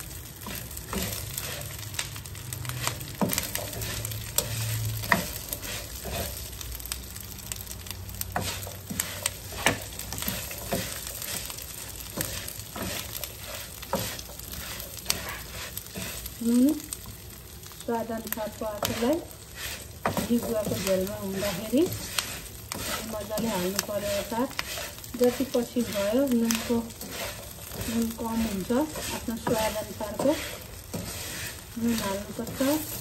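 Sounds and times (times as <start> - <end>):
wooden spoon scraping a pan: 0.0 - 17.2, 18.0 - 33.0
spices sizzling in hot oil: 0.0 - 33.0.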